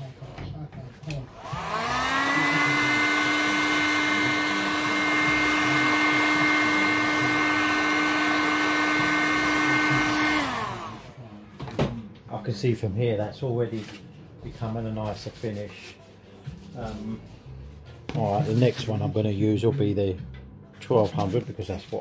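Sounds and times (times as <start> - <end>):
hot-air blower motor whine: 1.1 - 11.4.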